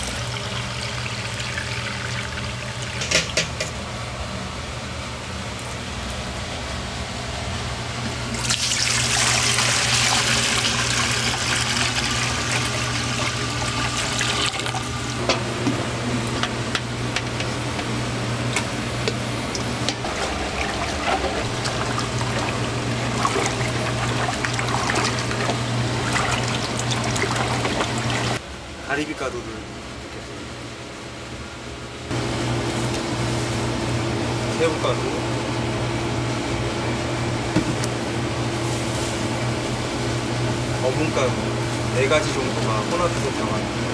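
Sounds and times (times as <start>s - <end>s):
liquid pouring through strainer: 8.4s - 14.9s, 20.0s - 28.4s.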